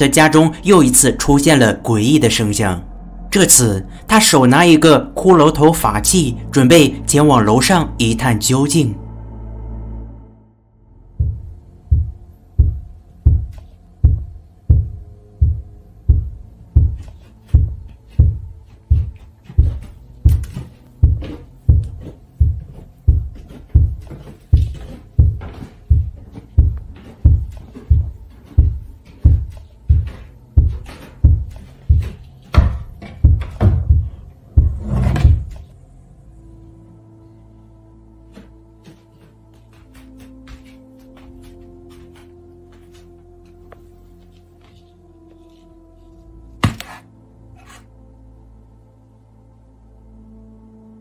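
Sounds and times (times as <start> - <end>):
heavy low thumps: 10.9 - 35.6.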